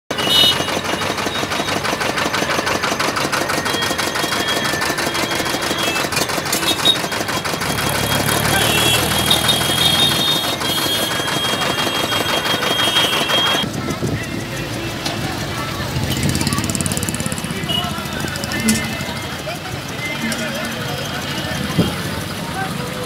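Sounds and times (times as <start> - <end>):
road traffic engines: 0.1 - 23.0
tractor engine passing: 0.1 - 23.0.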